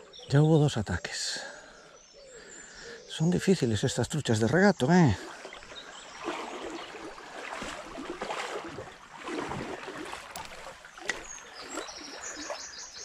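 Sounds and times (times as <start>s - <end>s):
stream water sloshing: 4.4s - 13.0s.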